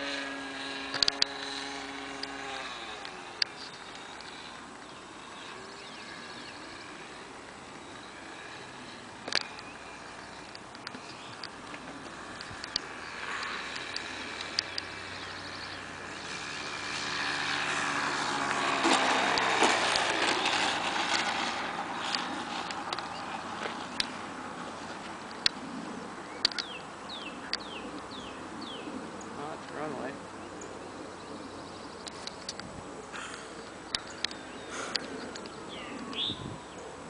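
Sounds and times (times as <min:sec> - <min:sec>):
model airplane engine: 0:00.0 - 0:37.0
sharp clicks: 0:00.9 - 0:01.6, 0:09.2 - 0:14.9, 0:26.4 - 0:26.8.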